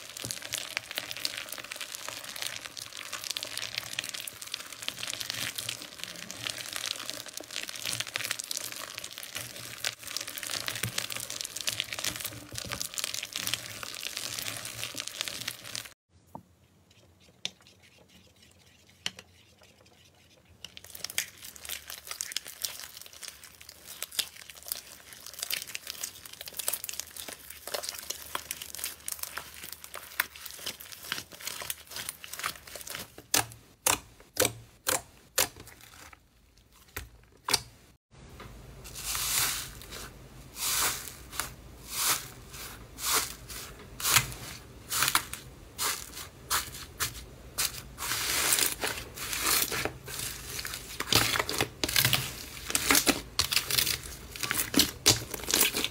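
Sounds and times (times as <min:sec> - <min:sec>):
slime crackling: 0:00.0 - 0:16.0, 0:20.8 - 0:36.2, 0:47.6 - 0:55.9
slime squishing: 0:00.0 - 0:16.0, 0:16.9 - 0:37.7, 0:39.0 - 0:55.9.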